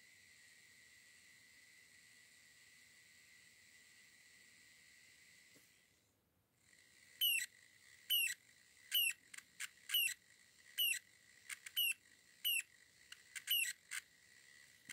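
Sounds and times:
short squeaks: 13.4s - 13.8s.

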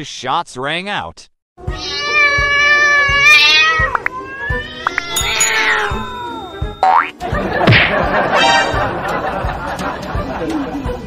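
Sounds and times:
background music: 1.6s - 11.0s
cat yowling: 1.7s - 6.8s.

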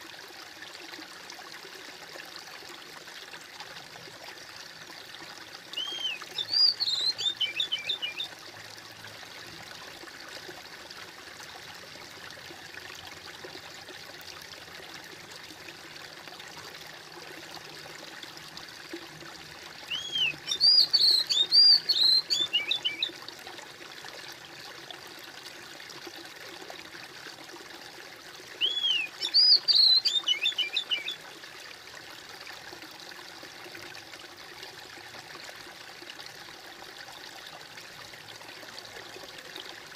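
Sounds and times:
stream trickling: 0.0s - 39.9s
songbird chirping: 5.8s - 8.3s, 19.9s - 23.1s, 28.6s - 31.2s.

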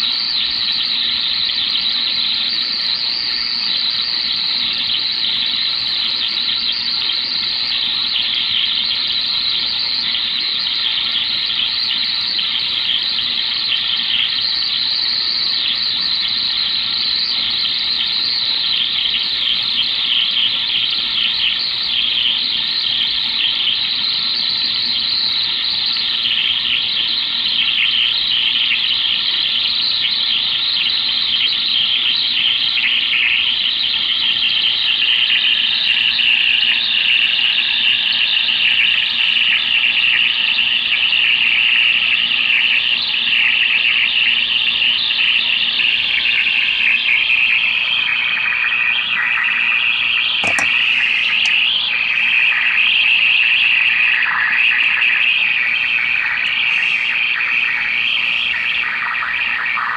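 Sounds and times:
radio speaker harsh rushing noise: 50.4s - 52.6s, 56.2s - 59.9s.

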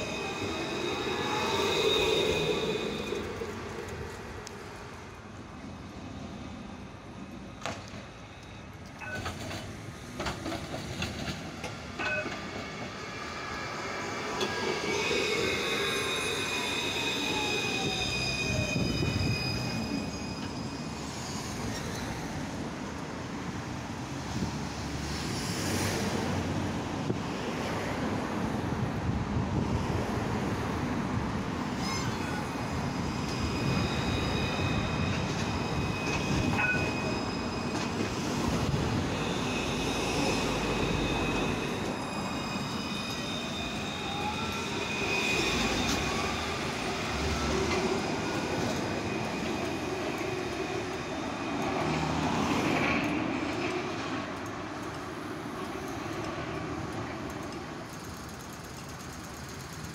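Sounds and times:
tram motor whine: 0.0s - 4.9s, 31.7s - 53.0s
wheels squealing on rails: 0.0s - 5.1s, 5.8s - 26.7s, 29.6s - 59.9s.

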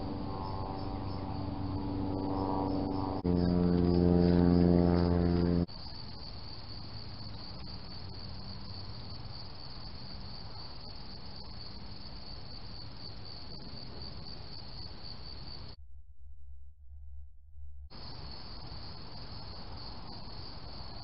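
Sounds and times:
loud low hum: 0.0s - 5.7s, 15.7s - 18.3s
crickets trilling: 0.0s - 15.8s, 17.9s - 21.0s.

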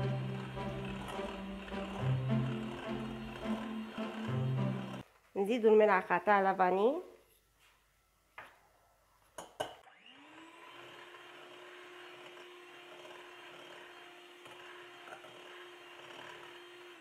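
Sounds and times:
electric hand mixer whisking batter: 0.0s - 5.1s, 9.9s - 17.0s.

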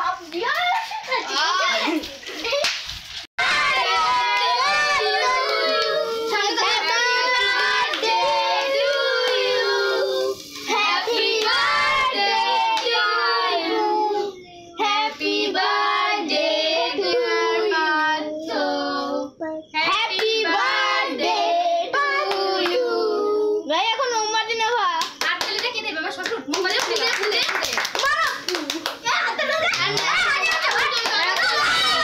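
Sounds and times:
children singing: 3.4s - 23.6s
hand clapping: 25.0s - 29.0s, 29.7s - 31.7s.

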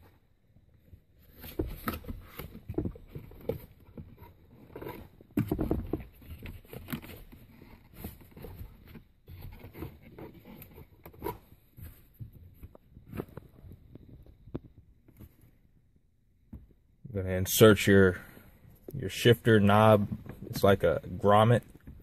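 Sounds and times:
rubbing and scraping rubber boot: 1.2s - 13.6s.

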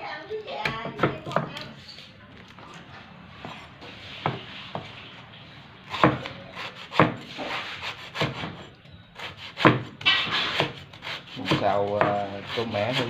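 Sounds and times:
knife scraping board: 3.3s - 5.0s, 5.9s - 13.0s
knife chopping on wooden board: 5.9s - 8.6s, 9.2s - 13.0s.

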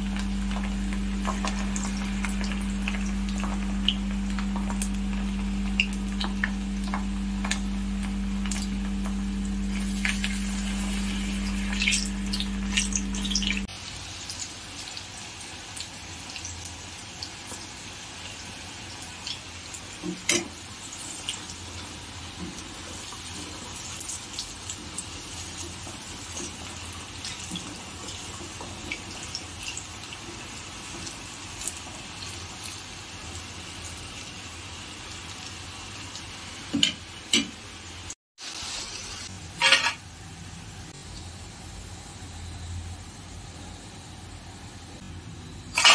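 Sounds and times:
steady low hum: 0.0s - 13.7s
deep-frying sizzle with crackles: 0.0s - 45.9s.

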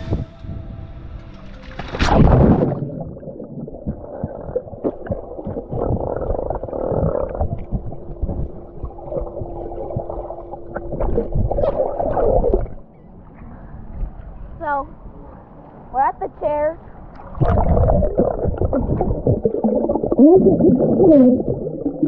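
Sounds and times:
steady low hum: 0.0s - 16.0s
splash into water: 1.6s - 3.2s
rush of bubbles underwater: 2.0s - 12.8s, 17.2s - 22.0s
underwater gurgling and bubbles: 2.0s - 13.0s, 17.1s - 22.0s.

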